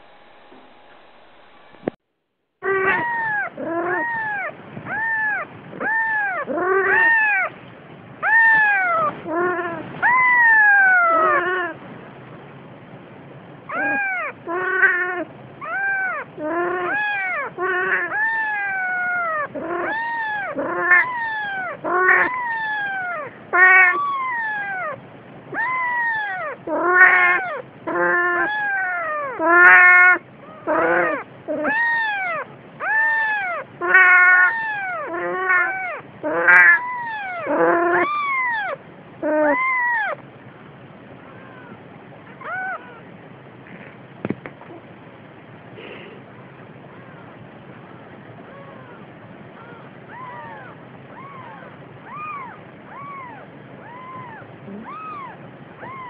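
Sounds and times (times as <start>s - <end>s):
kitten mewing: 2.6s - 7.5s, 8.2s - 11.8s, 13.7s - 40.2s, 41.3s - 41.8s, 42.4s - 43.0s, 49.6s - 56.0s.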